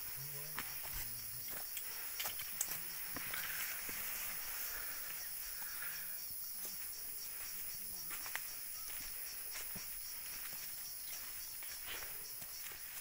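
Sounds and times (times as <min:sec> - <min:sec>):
insects chirring: 0:00.0 - 0:13.0
footsteps on dry leaves: 0:06.6 - 0:13.0.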